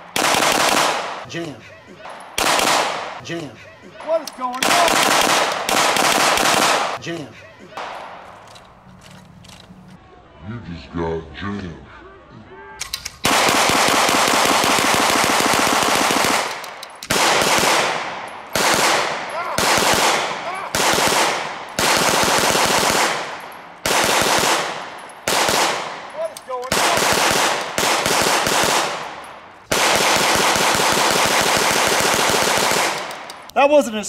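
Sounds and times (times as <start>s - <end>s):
gatling gun firing bursts: 0.1s - 1.2s, 2.4s - 3.2s, 4.6s - 7.0s, 13.2s - 26.1s, 26.7s - 33.3s.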